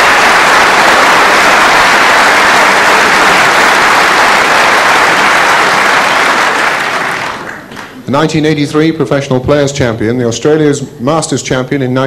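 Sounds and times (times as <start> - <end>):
large audience applauding: 0.0 - 8.0.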